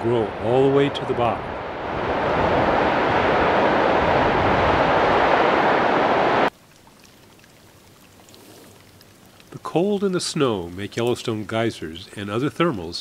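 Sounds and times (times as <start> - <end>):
waterfall rushing: 0.3 - 6.5.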